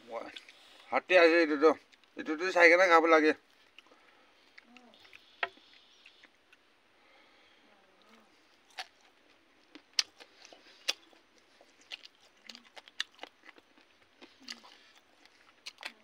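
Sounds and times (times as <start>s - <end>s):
person chewing with mouth open: 3.5s - 6.7s, 8.0s - 16.0s.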